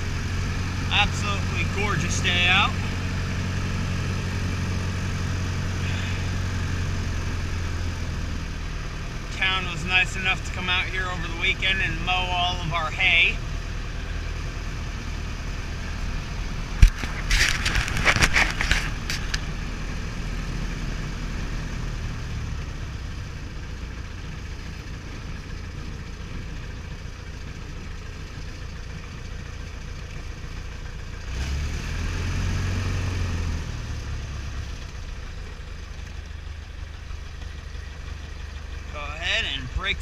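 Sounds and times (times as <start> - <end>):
aircraft engine running: 0.0 - 31.2, 34.0 - 40.0
clatter of clicks: 16.8 - 19.5.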